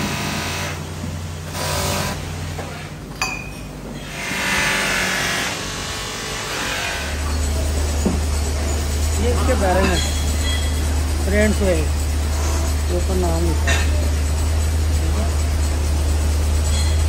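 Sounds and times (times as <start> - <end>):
metal clink: 3.2 - 3.8, 9.7 - 10.9
polishing motor humming: 4.0 - 17.0.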